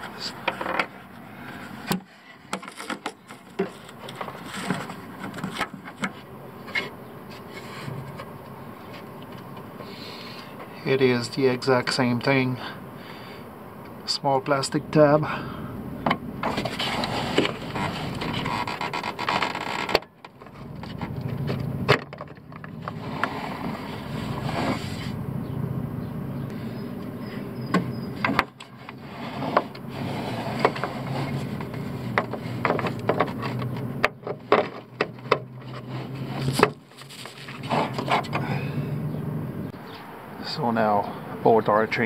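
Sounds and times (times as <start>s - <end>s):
steady low hum: 0.0s - 19.2s, 20.3s - 41.9s
plastic clicks and knocks: 31.6s - 35.5s.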